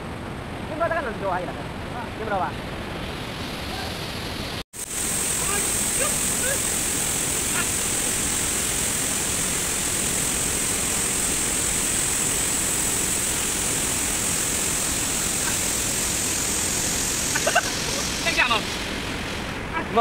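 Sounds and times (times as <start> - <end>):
whitewater rapids rushing: 3.6 - 20.0.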